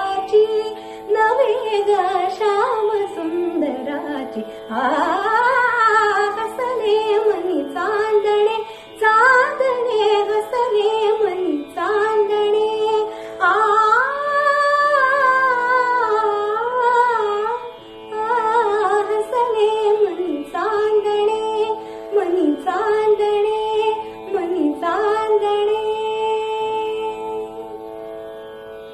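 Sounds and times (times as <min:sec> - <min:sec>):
woman singing: 0:00.0 - 0:27.8.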